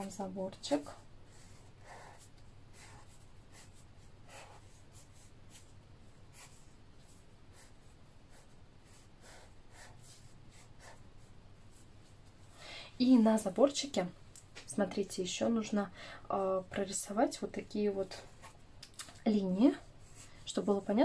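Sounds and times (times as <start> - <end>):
pen scratching on paper: 0.7 - 5.7, 6.3 - 11.1.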